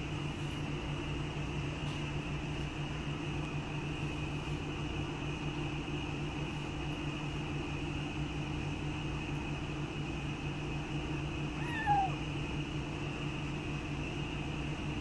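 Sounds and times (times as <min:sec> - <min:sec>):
machine hum with high whine: 0:00.0 - 0:15.0.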